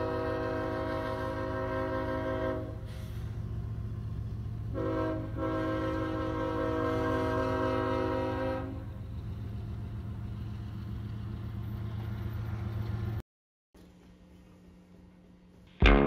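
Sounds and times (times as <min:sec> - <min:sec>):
locomotive air horn chord: 0:00.0 - 0:03.4, 0:04.7 - 0:08.9
freight train rumbling past: 0:00.0 - 0:13.2.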